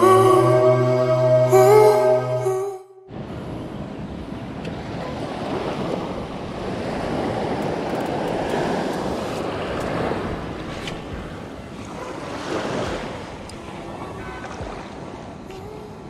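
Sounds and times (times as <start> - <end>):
waves washing onto beach: 3.2 - 16.0.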